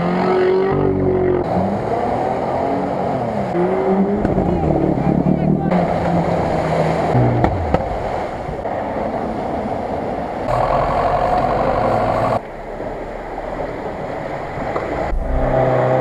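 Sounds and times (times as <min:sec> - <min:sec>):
off-road engines running hard: 0:00.0 - 0:16.0
water splashing: 0:00.6 - 0:10.6.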